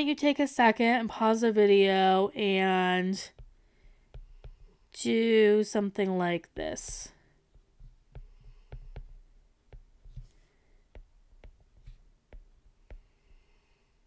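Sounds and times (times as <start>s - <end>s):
stylus tapping glass screen: 3.3s - 4.8s, 6.6s - 13.3s.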